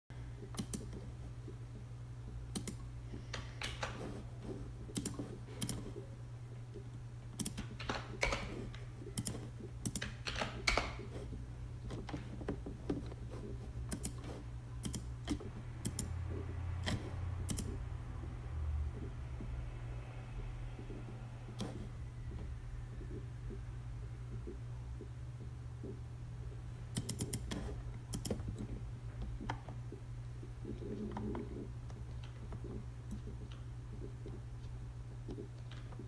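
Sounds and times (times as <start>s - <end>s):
steady low hum: 0.1s - 36.0s
computer keyboard keys tapping: 0.4s - 1.1s, 2.5s - 4.2s, 4.9s - 6.0s, 7.4s - 11.2s, 11.8s - 17.8s, 26.9s - 29.8s
mouse clicks: 0.5s - 1.0s, 4.9s - 5.9s, 13.9s - 16.1s, 16.8s - 17.8s.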